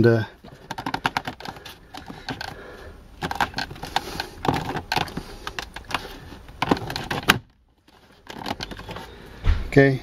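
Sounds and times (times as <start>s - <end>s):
plastic clicks and knocks: 0.5s - 2.6s, 3.2s - 9.1s.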